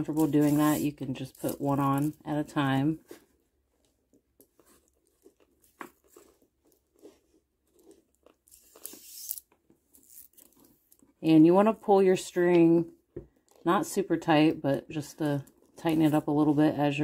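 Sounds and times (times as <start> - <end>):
soft rustle: 0.0 - 11.2.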